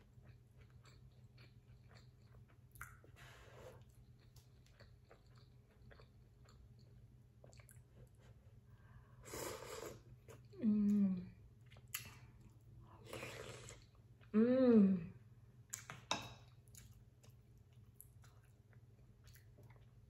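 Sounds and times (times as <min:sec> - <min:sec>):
chewing with wet mouth clicks: 0:00.0 - 0:03.2, 0:03.8 - 0:08.2, 0:11.6 - 0:12.7, 0:15.7 - 0:20.0
breath: 0:03.2 - 0:03.8
person humming mmm: 0:09.4 - 0:11.4, 0:14.3 - 0:15.2.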